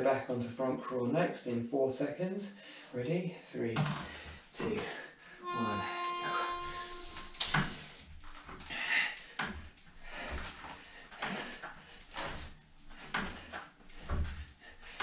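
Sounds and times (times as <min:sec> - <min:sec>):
resistance cords rustling and knocking: 0:07.2 - 0:15.0.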